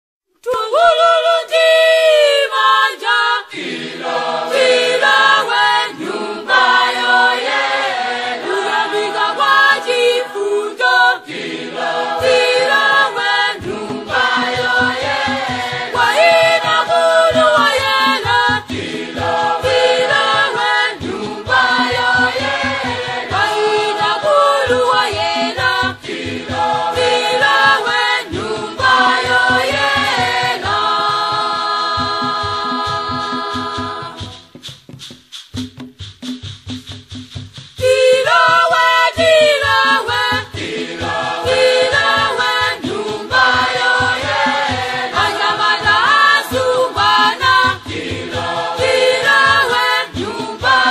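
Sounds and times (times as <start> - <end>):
group singing: 0.4 - 34.6, 37.8 - 50.9.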